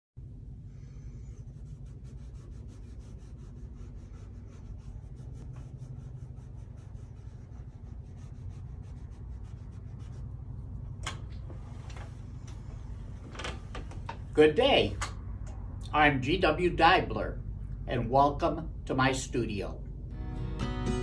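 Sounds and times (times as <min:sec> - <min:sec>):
low room hum: 0:00.2 - 0:21.0
paintbrush dabbing on canvas: 0:00.8 - 0:10.8.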